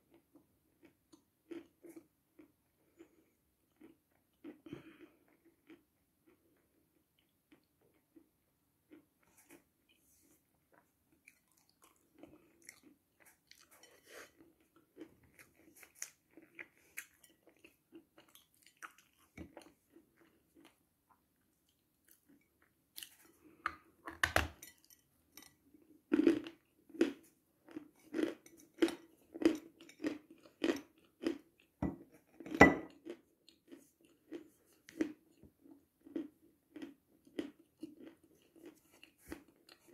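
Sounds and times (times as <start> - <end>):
chalk being chewed: 36.8 - 39.9.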